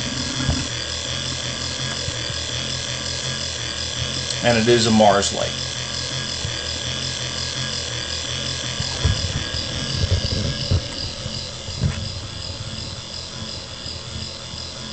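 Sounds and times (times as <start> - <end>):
low thumps: 0.0 - 0.9, 8.7 - 13.7
electric motor humming: 0.0 - 14.9.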